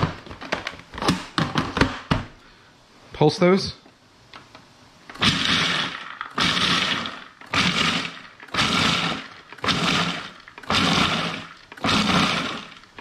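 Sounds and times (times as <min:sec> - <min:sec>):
food processor chopping nuts: 0:05.1 - 0:13.0.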